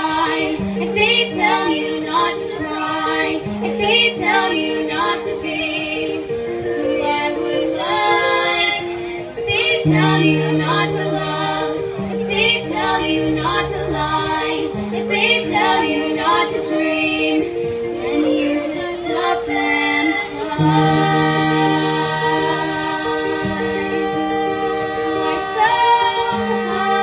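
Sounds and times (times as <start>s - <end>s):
instrumental accompaniment: 0.0s - 27.0s
singers performing a song: 0.0s - 27.0s
held bass notes: 6.7s - 27.0s.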